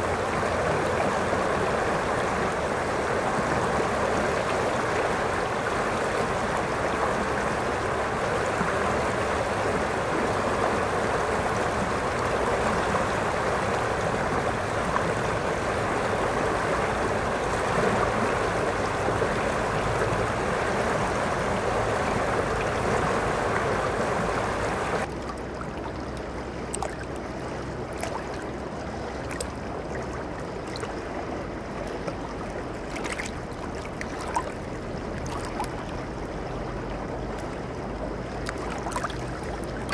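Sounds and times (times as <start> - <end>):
river water rushing: 0.0 - 39.9
small water splashes: 0.0 - 39.9
water lapping around rocks: 0.0 - 39.9.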